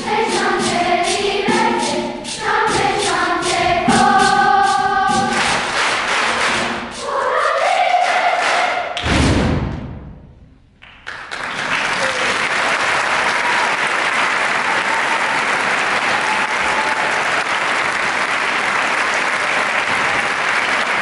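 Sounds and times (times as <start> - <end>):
choir singing: 0.0 - 9.0
audience applause: 10.8 - 21.0.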